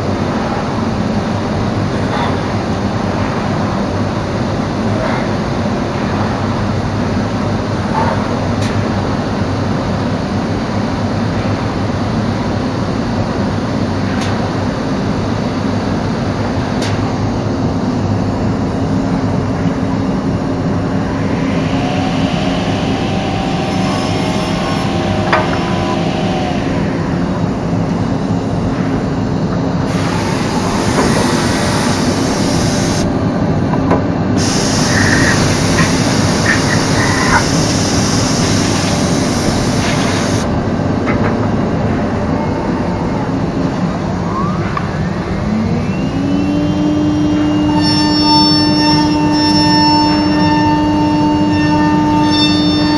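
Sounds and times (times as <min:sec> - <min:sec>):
cnc machine running: 0:00.0 - 0:52.9
high hiss: 0:20.7 - 0:28.1, 0:29.9 - 0:33.1, 0:34.4 - 0:40.5.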